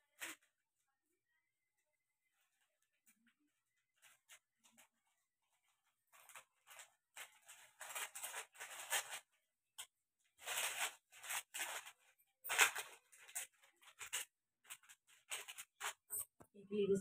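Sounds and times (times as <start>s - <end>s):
plastic packaging crinkling: 3.9s - 16.2s.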